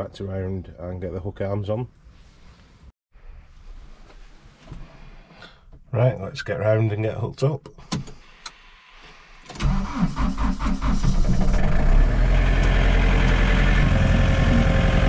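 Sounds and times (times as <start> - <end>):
tractor starter cranking: 9.5 - 13.5
diesel engine idling: 11.3 - 15.0.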